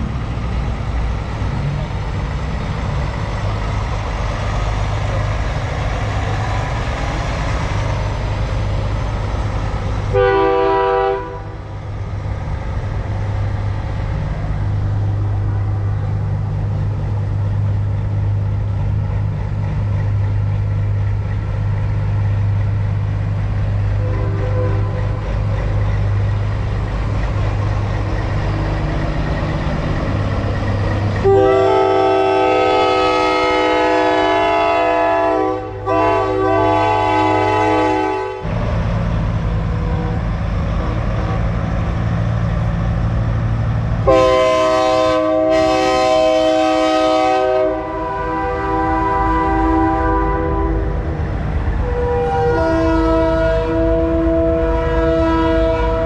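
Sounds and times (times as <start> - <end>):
diesel truck engine running: 11.7 - 31.9.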